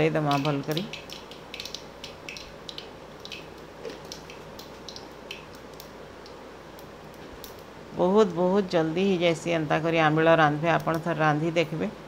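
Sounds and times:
spices sizzling and popping in oil: 0.0 - 8.5.

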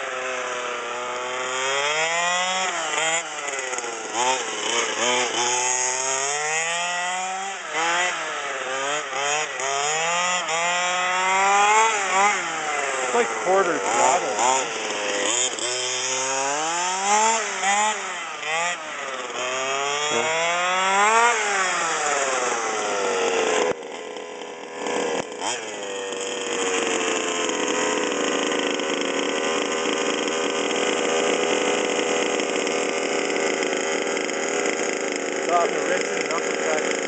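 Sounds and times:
two-stroke engine revving: 0.0 - 37.0.

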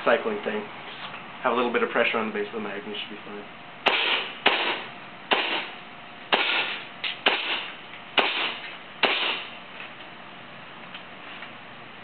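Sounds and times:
airsoft rifle shots: 3.8 - 9.5.

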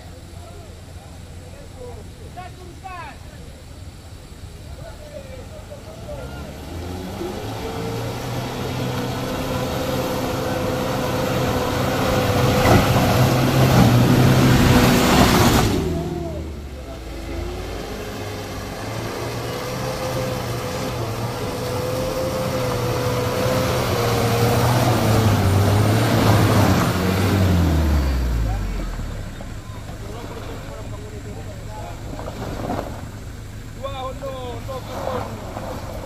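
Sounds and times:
diesel engine running hard: 0.0 - 36.0.

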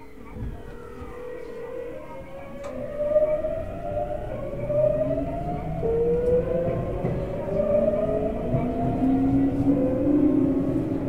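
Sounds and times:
train rumbling running noise: 0.0 - 11.0
electric train motors whining: 0.4 - 11.0.

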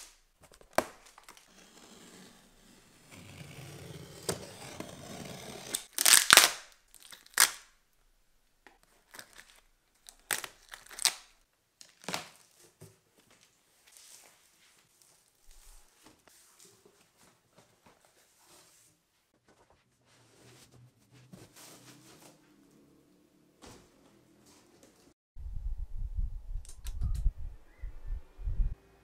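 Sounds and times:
packing tape peeling and ripping: 3.1 - 7.7, 9.1 - 12.4.

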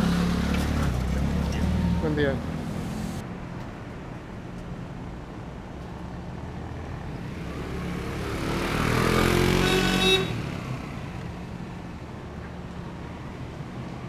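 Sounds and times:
motorcycle passing by: 0.0 - 3.2, 7.1 - 11.3.

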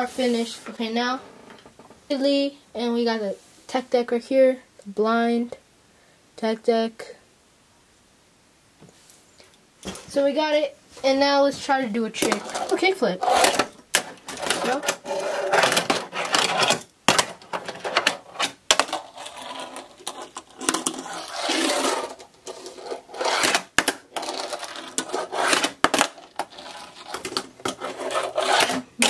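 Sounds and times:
fingerboard wheels rolling on plastic: 12.1 - 29.0.

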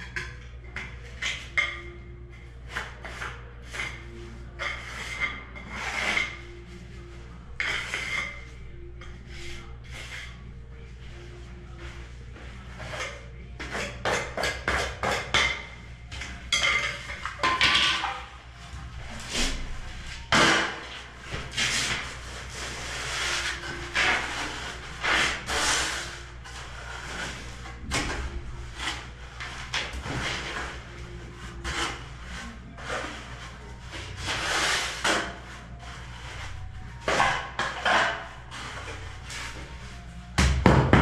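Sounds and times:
float scraping gritty mortar: 2.5 - 10.4, 19.0 - 39.8.

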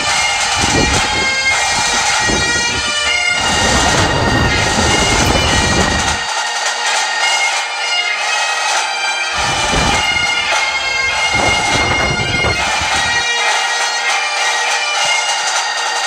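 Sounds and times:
bagpipe music with drone: 0.0 - 16.0
low rumble: 9.4 - 13.2.

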